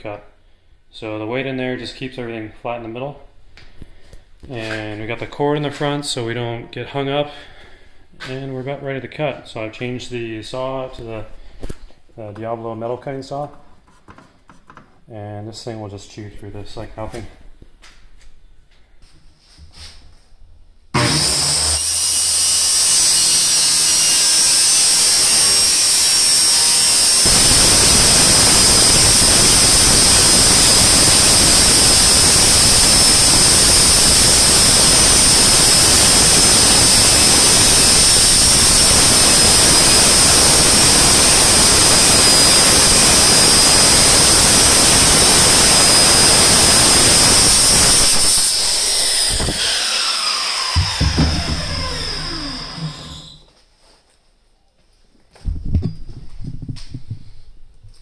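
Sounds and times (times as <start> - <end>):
circular saw cutting metal: 21.0 - 53.4.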